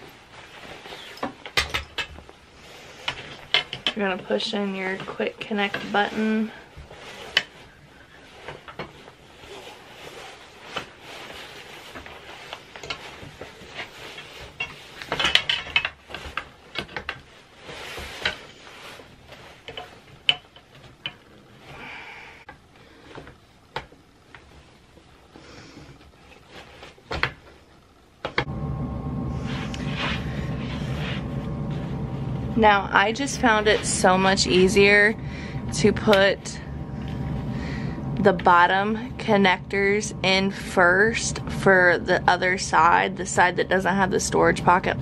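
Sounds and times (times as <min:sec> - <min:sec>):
rubbing and rustling of frame parts: 0:00.0 - 0:21.7, 0:22.6 - 0:28.4.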